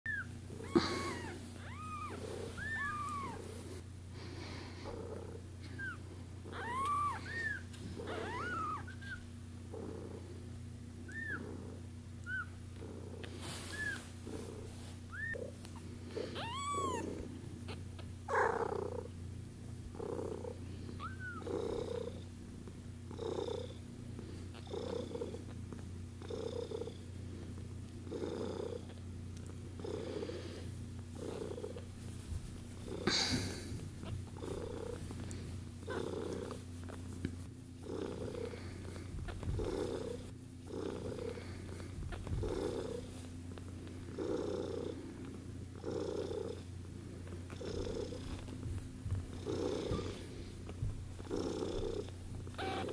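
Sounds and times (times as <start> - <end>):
kittens mewing: 0.1 - 3.5, 5.7 - 9.3, 15.1 - 18.6, 21.0 - 21.5, 52.5 - 52.9.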